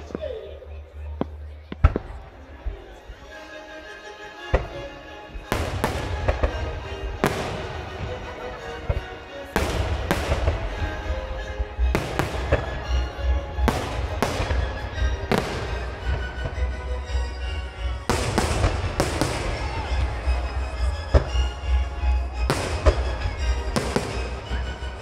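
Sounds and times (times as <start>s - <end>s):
background music: 0.0s - 25.0s
fireworks booming: 5.6s - 25.0s.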